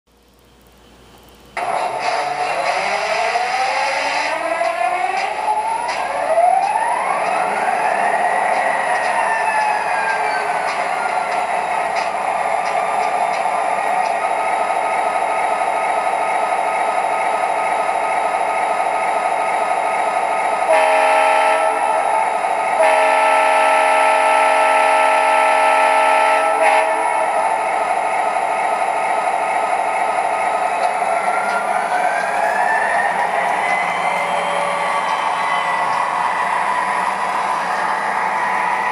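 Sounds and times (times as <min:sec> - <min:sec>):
locomotive horn: 0:20.6 - 0:22.1, 0:22.8 - 0:27.3
diesel engine idling: 0:26.6 - 0:38.2.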